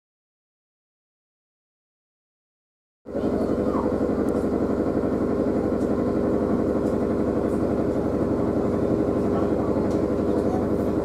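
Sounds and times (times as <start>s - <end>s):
tram mechanical hum: 3.1s - 11.0s.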